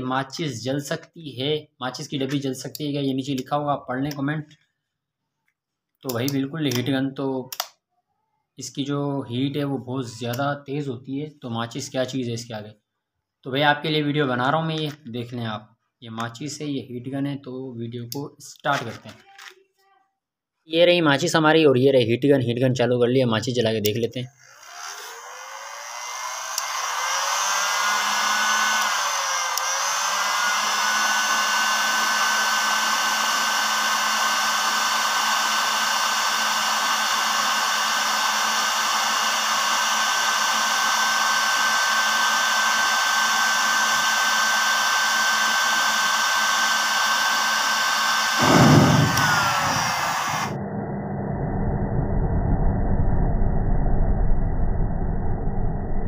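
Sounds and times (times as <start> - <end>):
heat gun fan whine: 24.4 - 50.6
rushing air hiss: 48.4 - 50.6
low rush of catching fire: 48.4 - 53.7.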